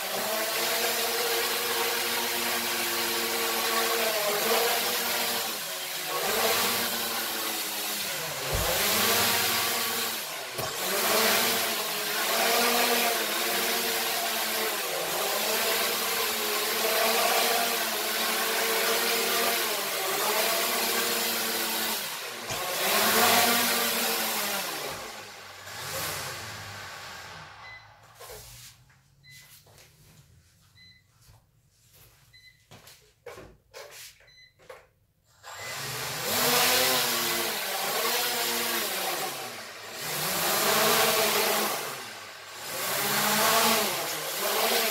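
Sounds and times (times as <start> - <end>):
drone propellers whirring: 8.0 - 13.4.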